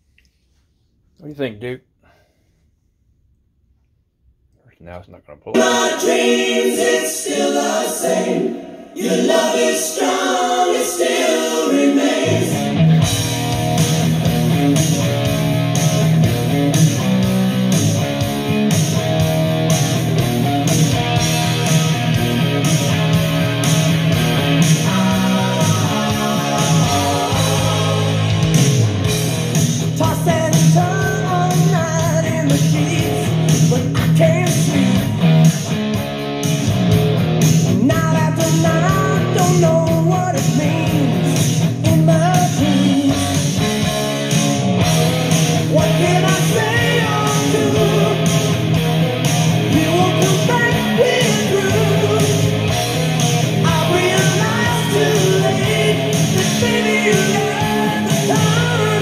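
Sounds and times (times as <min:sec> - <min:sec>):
rock song through speaker: 0:05.5 - 0:59.0.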